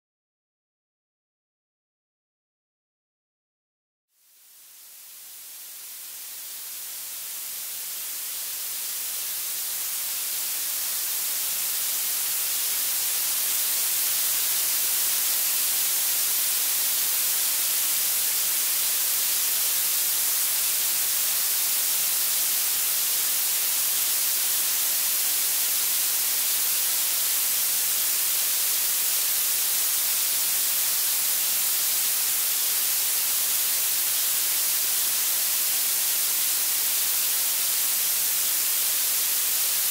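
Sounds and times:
steady high hiss: 4.2 - 39.9.

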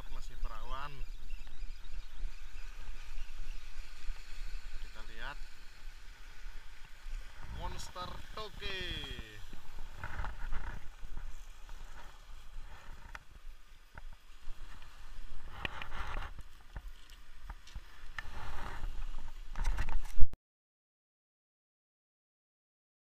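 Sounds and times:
wind rumble on microphone: 0.0 - 20.4
waves splashing against boulders: 2.6 - 20.0.

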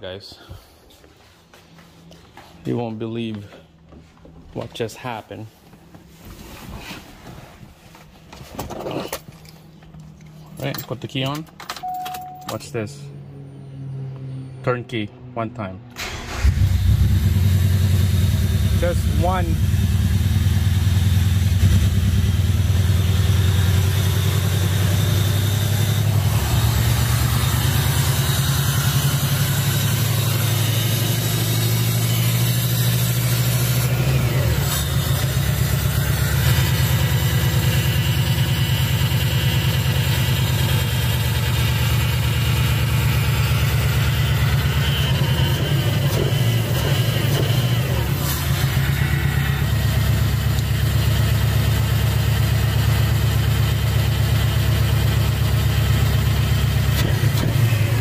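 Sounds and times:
car engine idling: 16.0 - 58.0.

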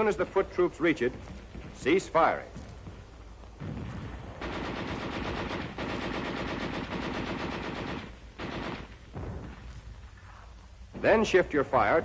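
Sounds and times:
machine gun firing bursts: 3.6 - 9.6.

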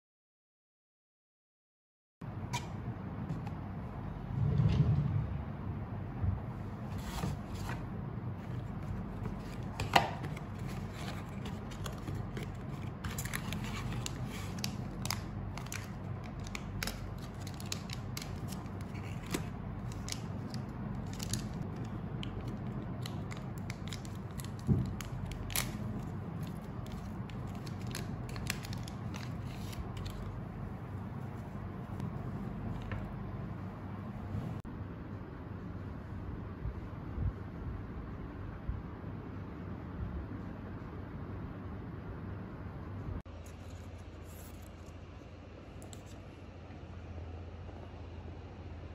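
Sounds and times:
low hum: 2.3 - 48.9
cardboard box being opened: 8.5 - 14.6
foil sachet torn open: 10.7 - 30.3.

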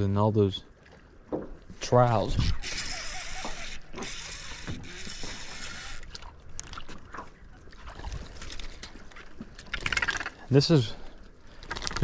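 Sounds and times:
fish splashing at water surface: 11.5 - 12.0.

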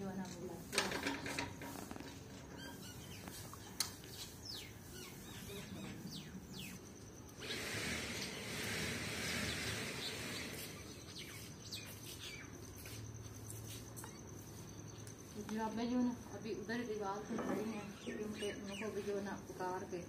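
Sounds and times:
small birds chirping: 1.2 - 20.0
loud hiss: 7.4 - 11.0.

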